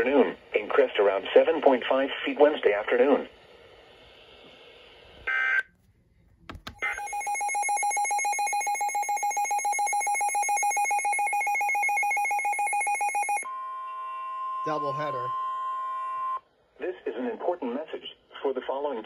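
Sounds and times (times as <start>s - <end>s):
faint radio hiss: 0.0s - 6.7s, 16.6s - 19.0s
clicks: 5.7s - 7.0s
steady warning tone: 6.6s - 16.4s
rapidly pulsing electronic beep: 6.8s - 13.4s.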